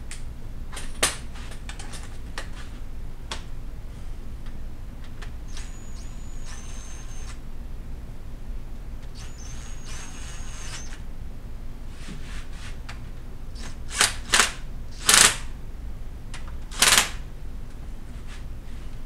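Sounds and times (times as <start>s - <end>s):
cordless drill whining: 5.4s - 7.4s, 9.1s - 11.0s.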